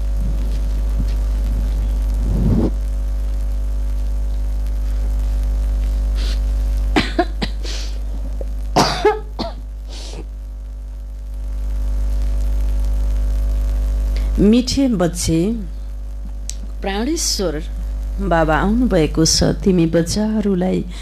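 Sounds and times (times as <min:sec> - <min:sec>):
low electrical hum: 0:00.0 - 0:21.0
woman coughing: 0:07.0 - 0:07.9, 0:08.8 - 0:10.3.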